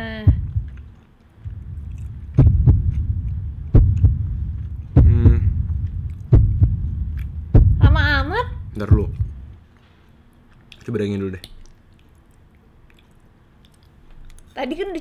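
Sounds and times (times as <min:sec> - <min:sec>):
deep heartbeat: 0:00.0 - 0:09.6
man humming while chewing: 0:05.0 - 0:05.6.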